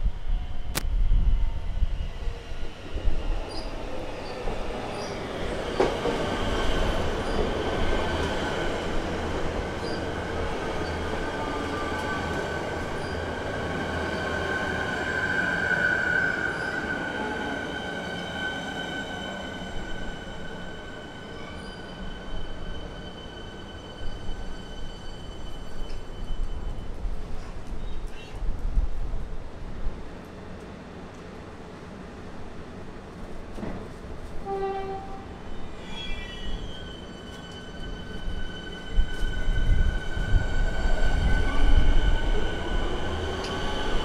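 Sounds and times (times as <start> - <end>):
train wheels rumbling on track: 0.7 - 31.8.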